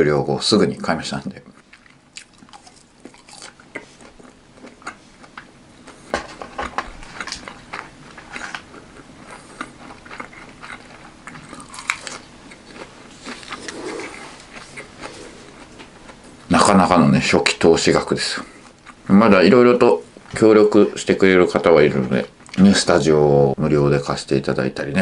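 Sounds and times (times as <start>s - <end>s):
chewing crispy fried chicken: 1.4s - 16.7s.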